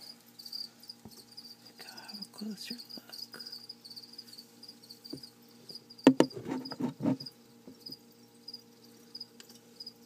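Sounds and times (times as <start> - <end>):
crickets chirping: 0.0 - 10.0
knocks and rustles: 6.0 - 8.0.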